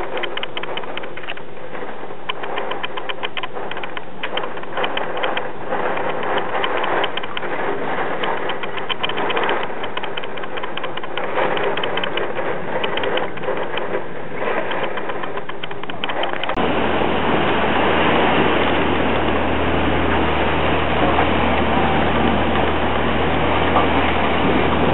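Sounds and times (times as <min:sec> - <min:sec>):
rain pelting a window: 0:00.0 - 0:24.9
wind rushing: 0:00.0 - 0:24.9.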